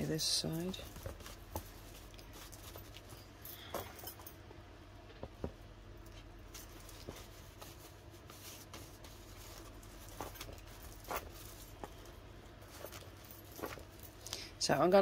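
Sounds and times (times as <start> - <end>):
low steady hum: 0.0 - 15.0
paper and cardboard rustling: 0.2 - 3.3, 6.1 - 14.2.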